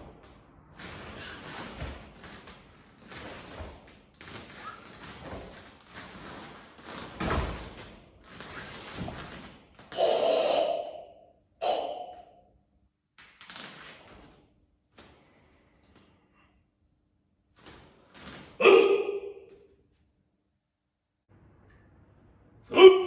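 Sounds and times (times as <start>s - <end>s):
forceful breathing and exhales: 0.0s - 12.3s.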